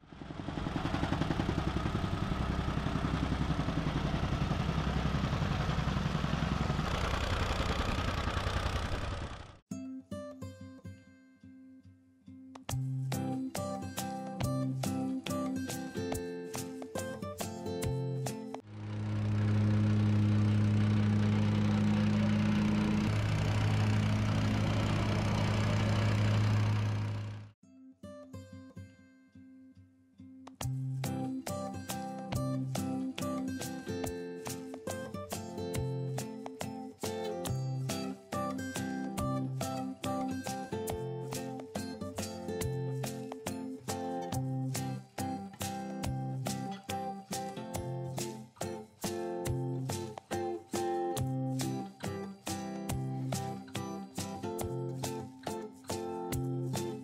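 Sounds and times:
plate compactor engine humming: 0.1s - 9.6s, 18.6s - 27.6s
tamping rammer pounding soil: 0.4s - 9.6s, 18.7s - 27.5s.

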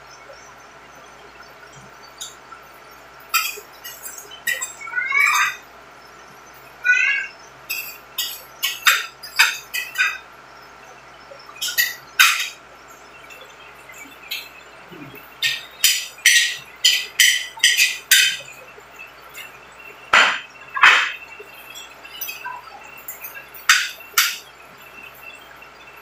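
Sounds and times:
cutlery clinking on ceramic plates: 3.3s - 4.8s, 7.7s - 10.2s, 11.6s - 12.6s, 15.4s - 18.5s, 20.2s - 21.2s, 23.1s - 24.5s.

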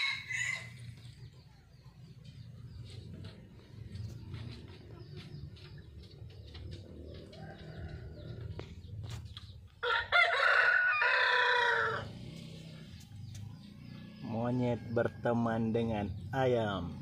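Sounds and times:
rooster crowing: 0.0s - 0.8s, 7.1s - 8.6s, 9.8s - 12.2s.

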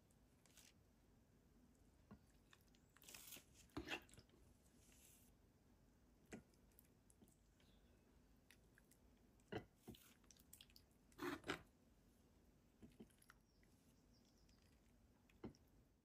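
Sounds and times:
spoon scraping bowl: 3.0s - 4.2s, 11.2s - 11.6s.

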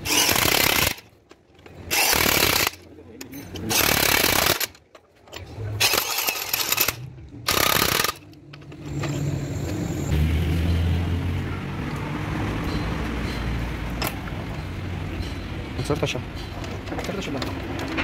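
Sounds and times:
impact wrench running: 0.0s - 1.0s, 1.9s - 2.8s, 3.7s - 4.8s, 5.8s - 8.3s.

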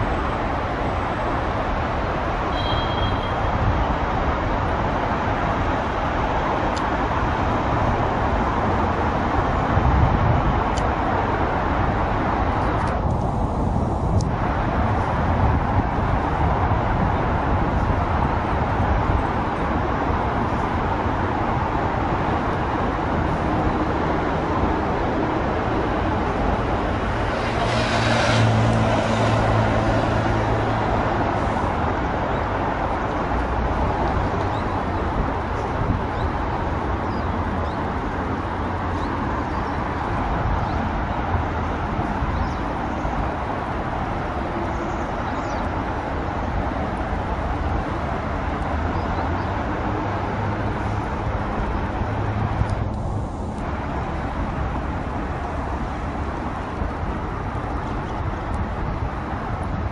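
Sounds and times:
road traffic noise: 0.0s - 59.9s
vehicle passing: 22.3s - 34.0s, 46.6s - 57.7s.

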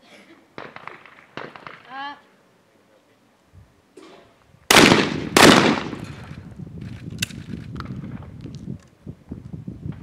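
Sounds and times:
shotgun shots with echo: 4.7s - 6.2s.

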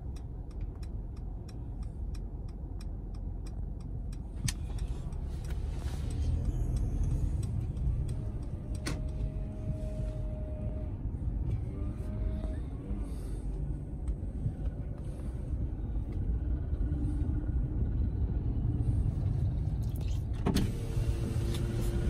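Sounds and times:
light ticks: 0.0s - 9.8s
car road rumble: 0.0s - 22.0s.

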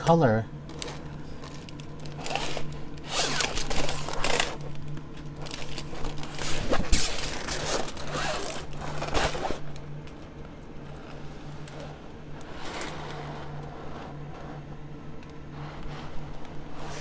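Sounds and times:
steady low hum: 0.0s - 17.0s
plastic film crinkling: 0.7s - 10.3s.

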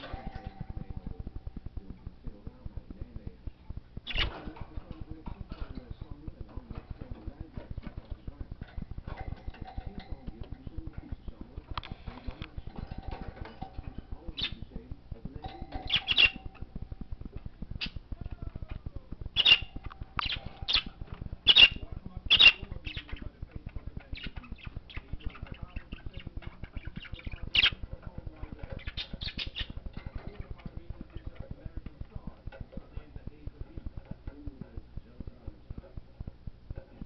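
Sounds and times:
budgerigar squawks and chirps: 4.1s - 4.4s, 15.7s - 16.5s, 19.4s - 23.2s, 24.2s - 27.8s, 28.8s - 29.8s.

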